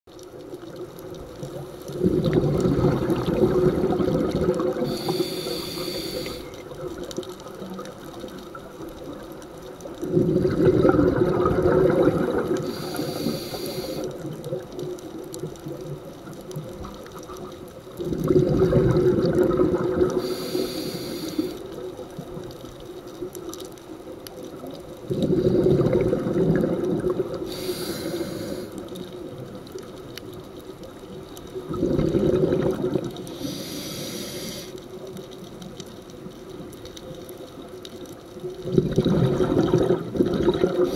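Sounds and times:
exhaled bubbles underwater: 0.1s - 40.9s
scuba regulator hiss: 4.8s - 6.6s, 12.6s - 14.2s, 20.2s - 21.6s, 27.5s - 28.9s, 33.3s - 34.8s.

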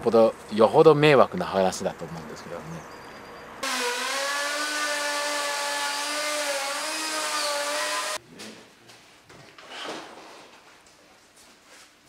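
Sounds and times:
router motor whine: 3.6s - 8.2s.

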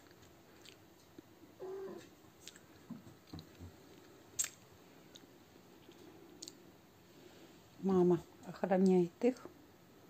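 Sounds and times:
cat mewing: 1.6s - 2.1s.

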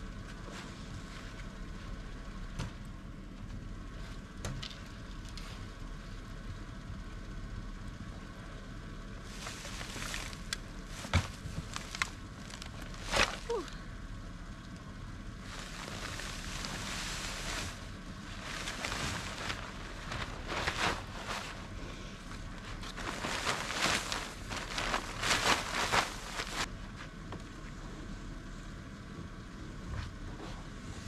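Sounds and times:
footsteps in snow: 9.2s - 13.6s, 15.4s - 26.7s
rustle of bags and clothing: 9.2s - 13.8s, 15.4s - 26.7s.

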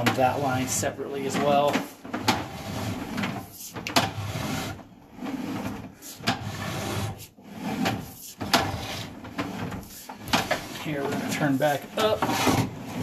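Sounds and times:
sharp clicks and knocks: 0.0s - 4.2s, 7.8s - 12.7s
cable scraping in drain: 0.0s - 13.0s.

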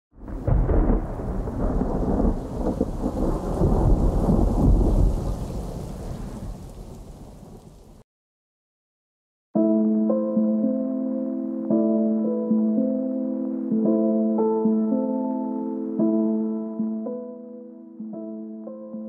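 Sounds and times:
deep thunder-like rumble: 0.2s - 8.0s
rain-like hiss: 1.8s - 8.0s.

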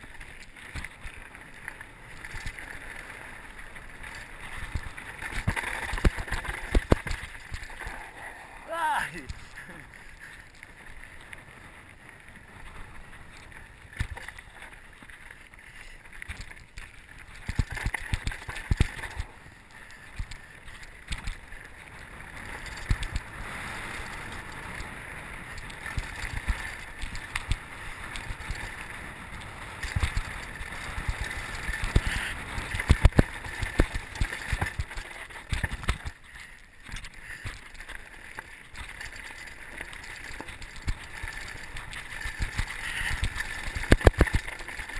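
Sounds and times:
bike frame rattling: 0.0s - 7.9s, 29.8s - 44.9s
bike tyres crunching over stones: 0.0s - 44.9s.

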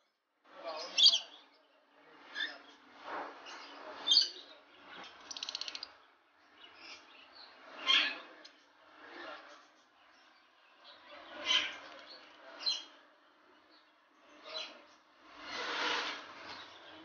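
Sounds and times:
bird trill: 5.2s - 5.9s
parrots chirping and squawking: 5.2s - 5.9s, 11.4s - 12.0s.

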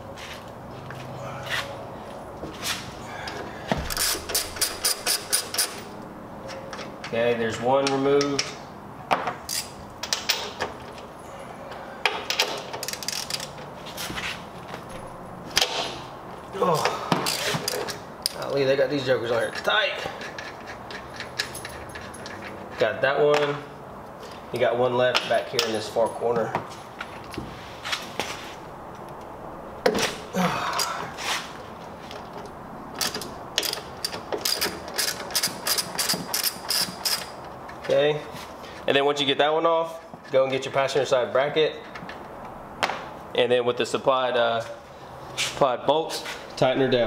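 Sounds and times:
socket ratchet clicking: 3.9s - 5.8s
hand tools clicking on metal: 3.9s - 5.9s, 12.0s - 13.7s, 19.3s - 23.6s, 32.1s - 37.9s.

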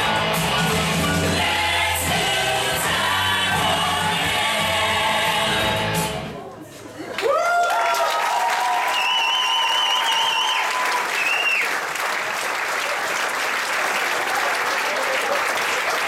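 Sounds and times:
audience applauding and cheering: 7.0s - 16.0s
high-pitched whoops: 7.2s - 11.7s.

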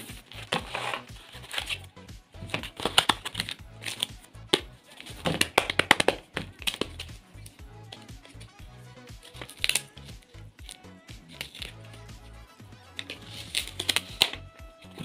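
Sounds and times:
background music: 0.0s - 15.0s
tape crinkling rustles: 13.0s - 15.0s.

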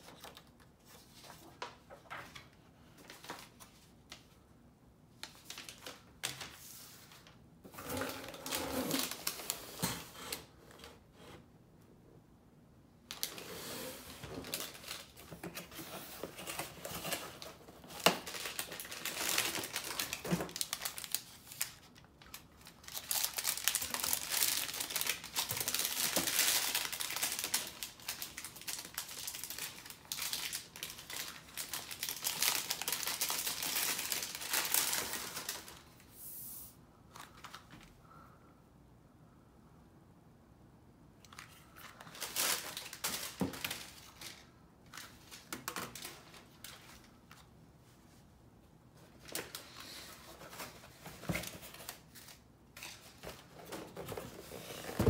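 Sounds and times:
packing paper crinkling: 8.0s - 9.8s, 13.1s - 36.0s, 41.3s - 47.5s.

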